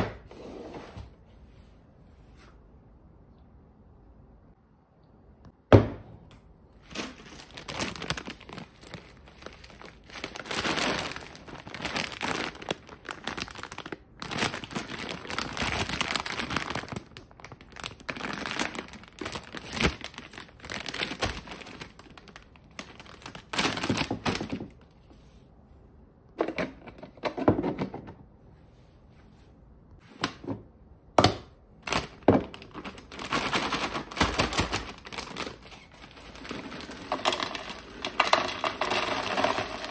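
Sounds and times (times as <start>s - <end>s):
plastic bag crinkling: 6.8s - 24.8s, 31.8s - 39.9s.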